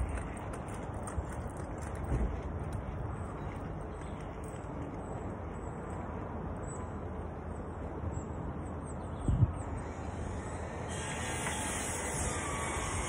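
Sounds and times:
wind rumbling on microphone: 0.0s - 5.0s, 9.2s - 10.0s.

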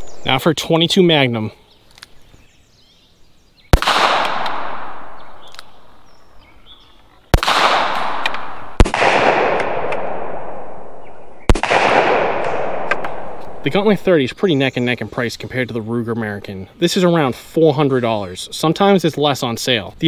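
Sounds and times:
handgun shots with echo: 3.8s - 5.8s, 7.4s - 10.8s, 11.5s - 13.6s.

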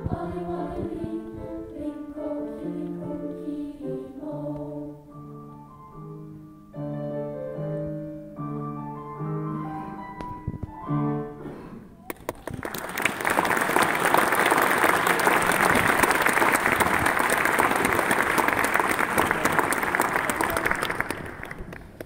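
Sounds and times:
piano notes: 0.0s - 11.7s
audience applause: 12.1s - 22.0s.

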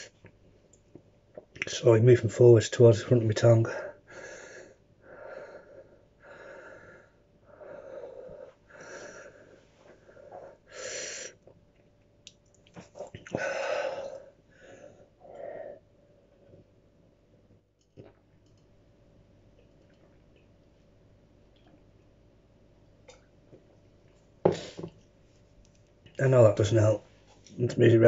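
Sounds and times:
man panting heavily: 3.9s - 9.5s.

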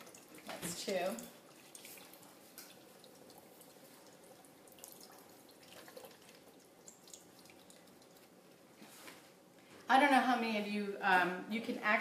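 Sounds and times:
liquid trickling and splashing: 0.0s - 8.4s
small drips and ticks: 0.0s - 8.9s.

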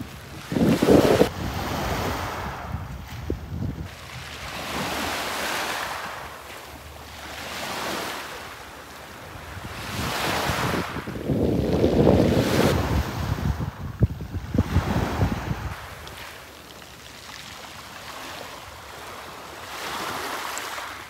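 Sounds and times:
wind buffeting microphone: 0.0s - 5.2s, 9.3s - 16.2s
sea waves washing in: 0.0s - 21.0s.

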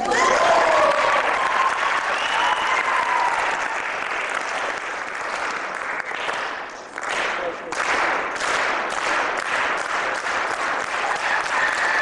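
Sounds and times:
audience shouts: 0.0s - 3.7s, 11.0s - 12.0s
audience applauding and cheering: 0.0s - 12.0s.

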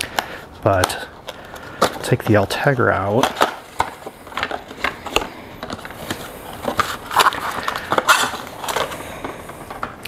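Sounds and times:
plastic packaging crinkling: 0.0s - 10.0s
cardboard box opening: 3.2s - 9.0s.

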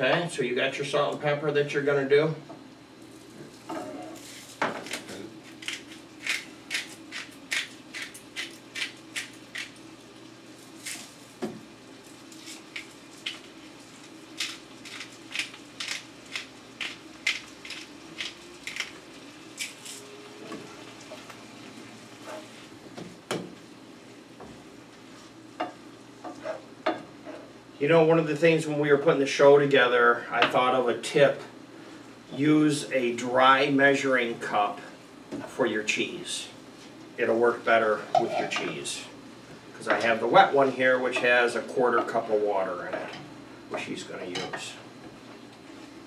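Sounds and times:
faint sizzle from pan: 9.0s - 28.2s.

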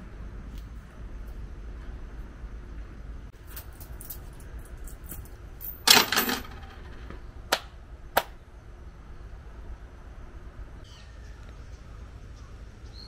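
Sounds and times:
coins clattering into wooden box: 3.5s - 7.0s
sharp hand claps: 7.5s - 8.4s.

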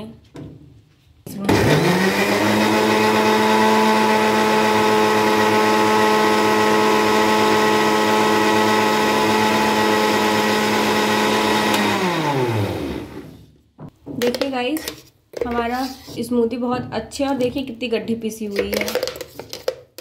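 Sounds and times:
mixer grinder running: 1.5s - 13.4s.

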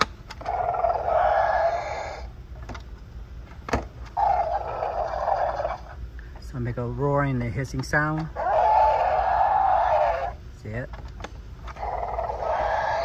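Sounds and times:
electronic dinosaur roaring and hissing: 0.4s - 2.4s, 4.2s - 6.0s, 8.4s - 10.4s, 11.7s - 13.0s.

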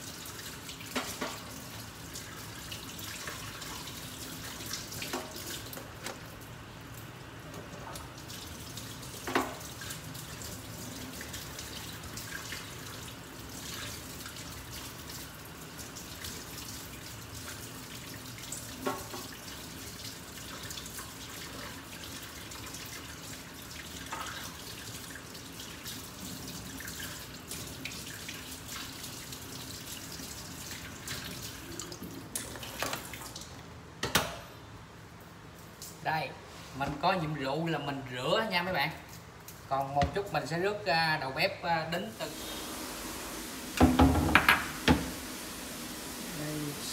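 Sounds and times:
tap running into metal sink: 9.2s - 9.7s, 43.7s - 45.2s
crab shell knocking on sink: 43.8s - 45.1s.

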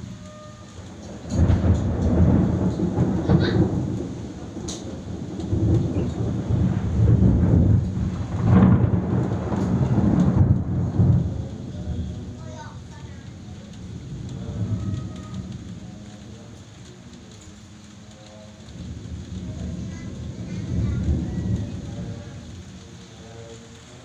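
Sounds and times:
rolling thunder: 0.0s - 24.0s.

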